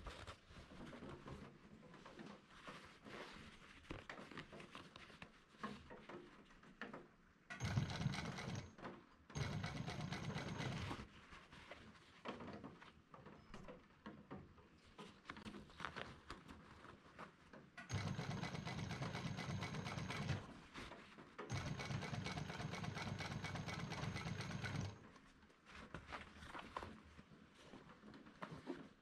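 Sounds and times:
sewing machine stitching: 7.5s - 11.1s, 17.8s - 20.6s, 21.5s - 25.1s.

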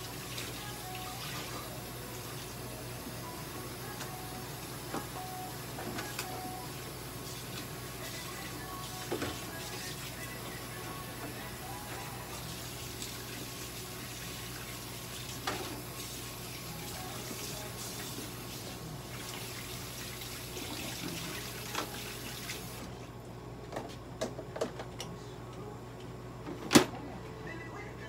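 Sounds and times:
water running from a tap: 12.2s - 22.8s.

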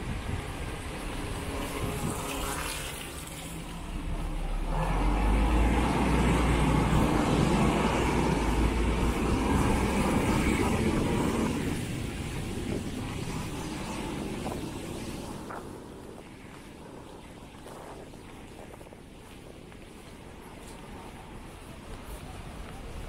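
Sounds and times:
heavy engine passing: 0.0s - 18.0s.

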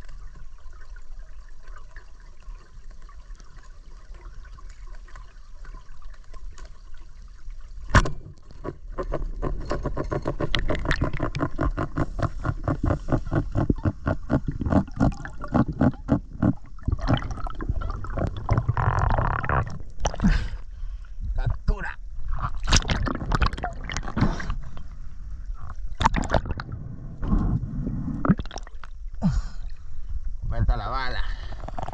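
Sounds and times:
rapid underwater clicking: 8.0s - 20.2s, 22.3s - 24.6s.

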